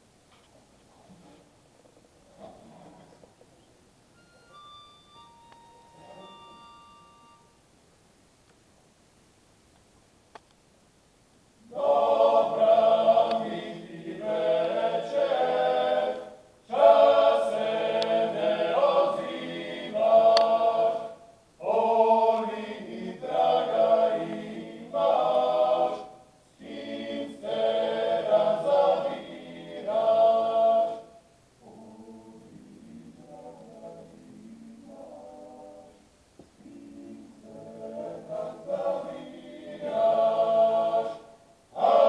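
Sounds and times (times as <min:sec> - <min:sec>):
male choir singing a cappella: 0:11.6 - 0:42.0.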